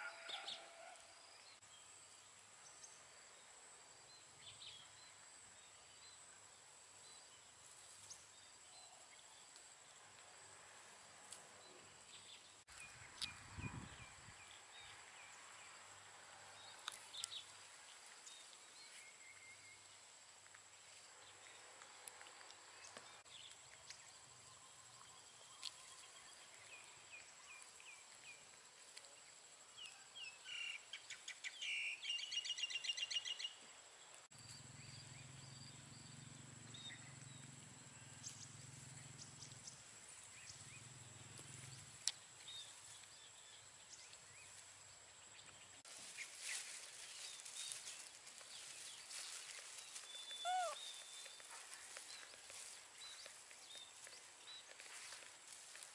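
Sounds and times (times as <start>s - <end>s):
small birds chirping: 21.2s - 55.9s.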